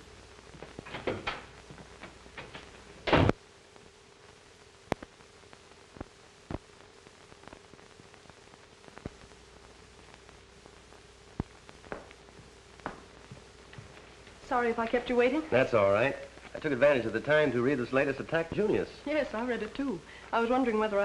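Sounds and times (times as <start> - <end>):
film soundtrack hiss and hum: 0.0 - 21.0
door shutting: 0.8 - 1.5, 2.4 - 3.4
faint clicks: 4.9 - 5.1.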